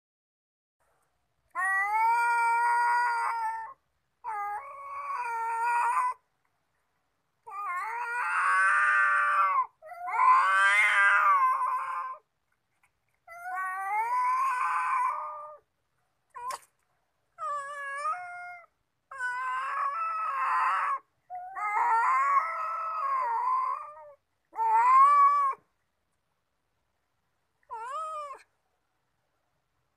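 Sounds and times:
cats yowling: 1.5s - 6.2s, 7.4s - 12.3s, 13.3s - 15.7s, 16.3s - 16.7s, 17.4s - 25.6s, 27.7s - 28.5s.

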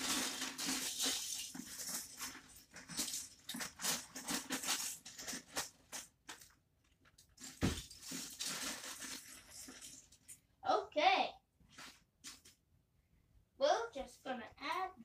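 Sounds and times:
plastic bricks clattering: 0.0s - 6.5s.

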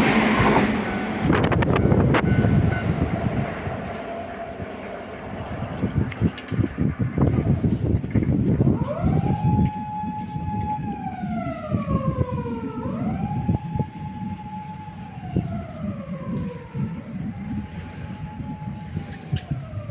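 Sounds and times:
siren wailing: 0.0s - 6.1s, 6.7s - 19.9s
low rumble: 0.0s - 19.9s.

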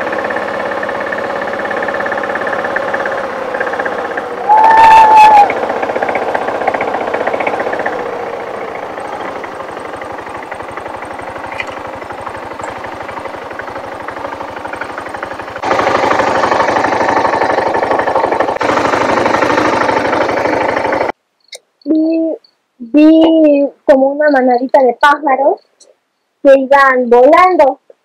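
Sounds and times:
motorcycle engine running: 0.0s - 21.2s.

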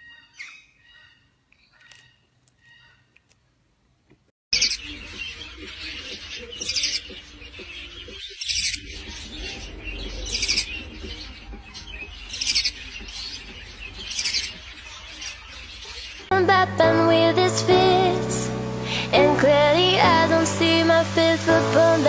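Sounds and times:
budgerigars chirping and chattering: 0.0s - 3.1s, 4.6s - 16.3s.

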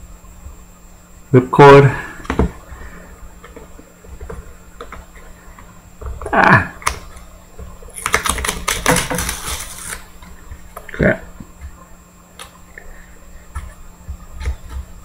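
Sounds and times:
wrapper crinkling: 7.9s - 10.1s
wrapper tearing: 7.9s - 10.1s.

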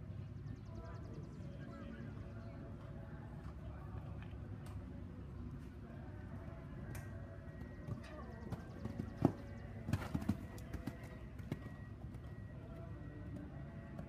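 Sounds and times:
horse hooves on sand: 7.4s - 14.0s.

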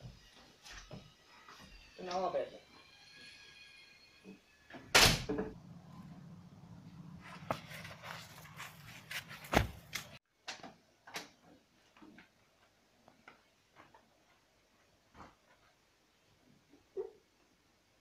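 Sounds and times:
door shutting with a bang: 4.8s - 5.6s
low steady hum: 5.0s - 9.5s.

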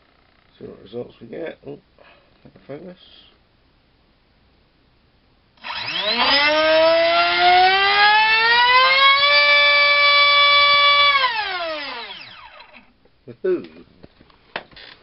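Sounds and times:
electric motor whining: 5.6s - 12.9s.

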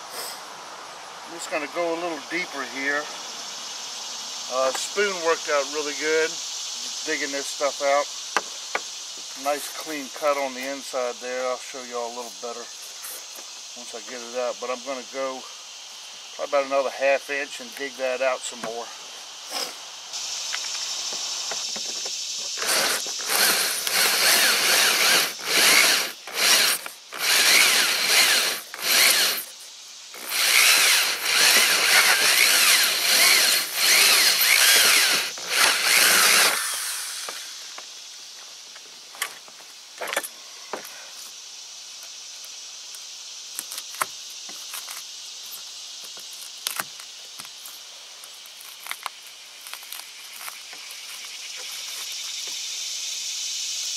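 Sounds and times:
insect chirping: 0.0s - 53.9s
drill cutting into plastic: 22.6s - 29.5s, 30.2s - 37.8s.

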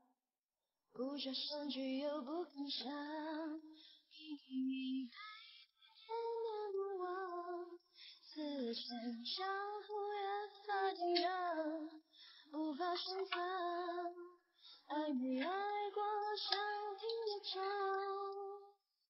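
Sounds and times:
woman singing high-pitched: 1.0s - 5.4s, 6.0s - 12.0s, 12.6s - 18.8s.

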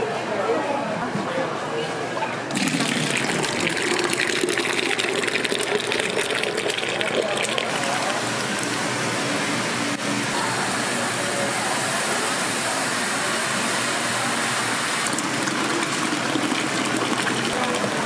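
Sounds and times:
water gushing from a tap: 2.5s - 8.9s, 14.4s - 18.0s.

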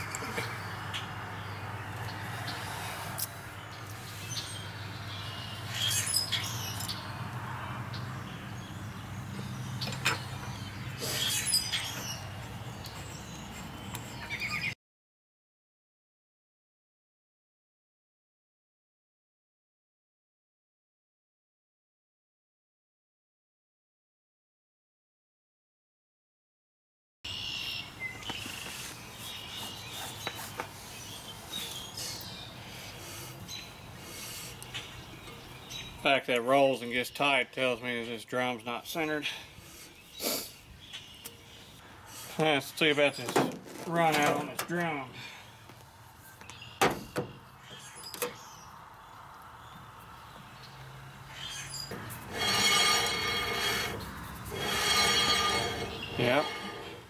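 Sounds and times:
birds chirping: 0.0s - 14.8s, 27.3s - 57.0s
brake drum rolling and binding: 51.9s - 57.0s.

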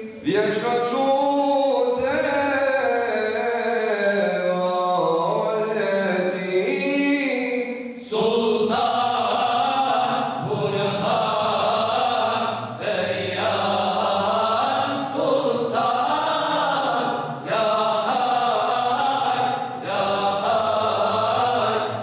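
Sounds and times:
group of voices chanting: 8.8s - 22.0s.

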